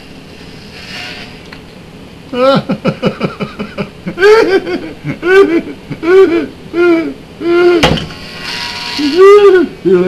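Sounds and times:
man laughing in whoops: 0:02.3 - 0:07.9, 0:09.1 - 0:10.0.

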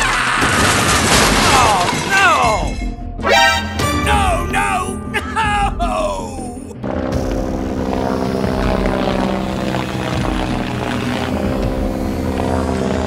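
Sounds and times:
steady engine drone: 0:06.3 - 0:13.0.

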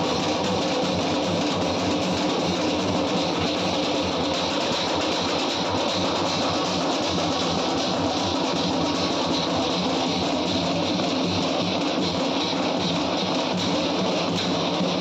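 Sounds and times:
drum band beating drums: 0:00.0 - 0:15.0.

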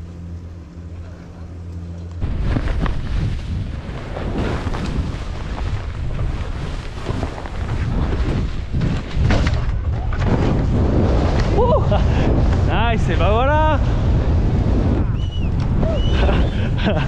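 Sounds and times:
skis scraping over crusty snow: 0:02.2 - 0:14.9
wind buffeting microphone: 0:02.2 - 0:17.0.

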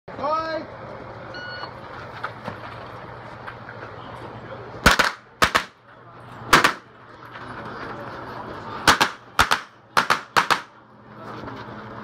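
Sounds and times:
shot timer start beep: 0:01.3 - 0:01.7
carbine gunshots: 0:04.8 - 0:05.8, 0:06.5 - 0:06.9, 0:08.9 - 0:10.8.

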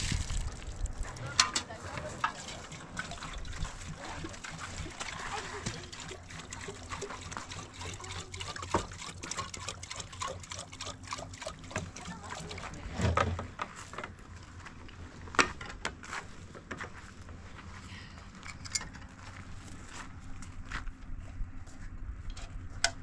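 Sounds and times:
water trickling into kettle: 0:02.2 - 0:12.8.

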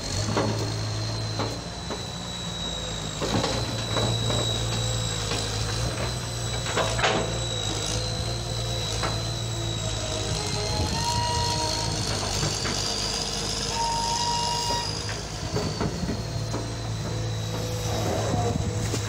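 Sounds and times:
excavator diesel engine running: 0:00.0 - 0:19.0
thin high whine: 0:07.2 - 0:12.4, 0:13.6 - 0:19.0.

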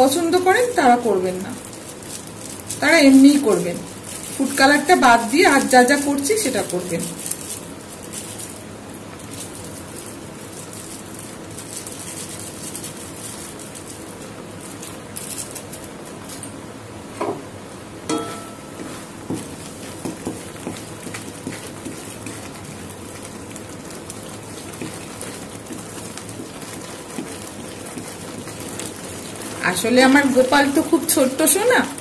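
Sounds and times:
syrup bubbling and sizzling in pan: 0:00.0 - 0:06.6, 0:18.7 - 0:32.0
wooden spatula scraping pan: 0:18.7 - 0:30.5.

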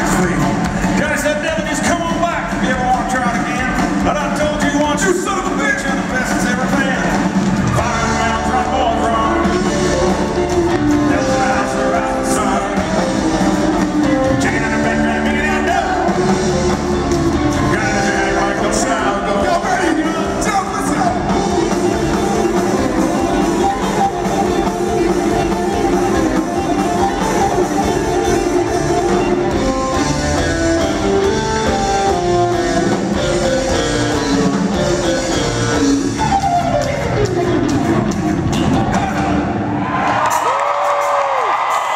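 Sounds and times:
bass guitar: 0:00.0 - 0:41.9
drums: 0:00.0 - 0:41.9
electric guitars: 0:00.0 - 0:41.9
person singing: 0:07.8 - 0:29.3.

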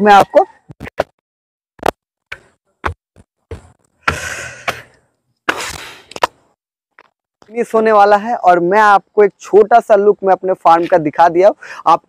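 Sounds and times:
footsteps on concrete stairs: 0:02.4 - 0:04.8.

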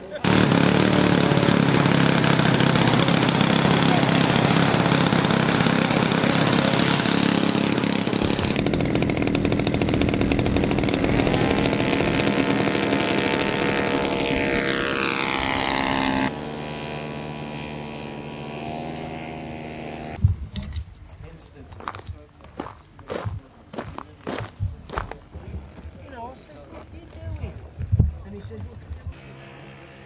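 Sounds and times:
model plane engine and propeller: 0:00.0 - 0:21.0, 0:28.3 - 0:30.0.

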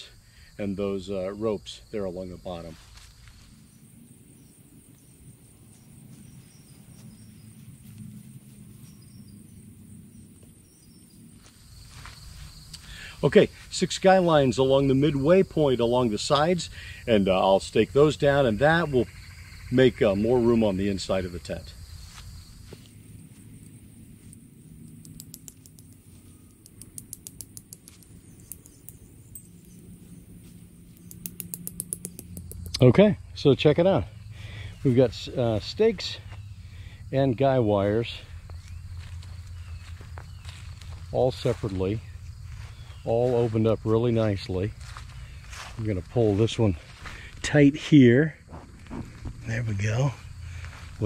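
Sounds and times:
insects trilling: 0:00.0 - 0:51.0
low outdoor rumble: 0:00.0 - 0:51.0
faint ticks: 0:23.6 - 0:29.8, 0:30.9 - 0:32.9.

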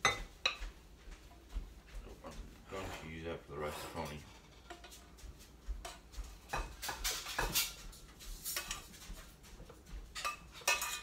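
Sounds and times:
utensil clinking and scraping pan: 0:05.8 - 0:09.4, 0:10.1 - 0:11.0.

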